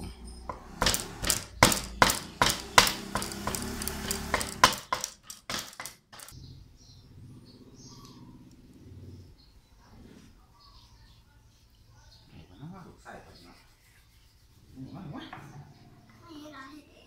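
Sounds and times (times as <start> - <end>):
knife chopping on wooden block: 0.5 - 6.3.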